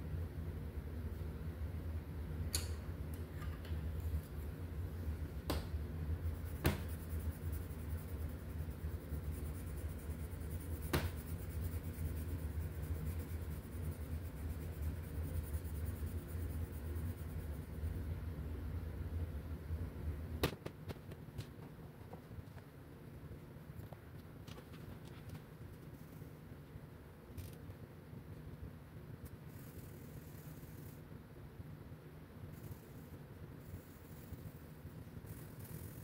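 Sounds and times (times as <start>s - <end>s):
steady low hum: 0.0s - 36.0s
pencil scratching on paper: 6.3s - 17.9s.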